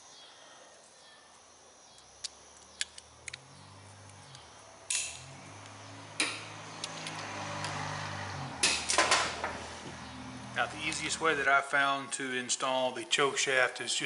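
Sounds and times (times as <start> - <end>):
low hum shifting in pitch: 3.0 - 11.5
metallic clicks of pliers on metal: 4.3 - 5.2.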